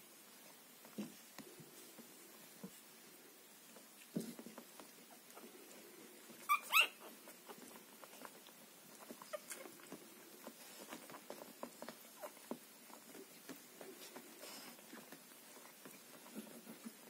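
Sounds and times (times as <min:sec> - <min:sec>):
shuffling: 0:00.3 - 0:17.0
puppy squeaks: 0:06.4 - 0:07.2, 0:09.0 - 0:09.7.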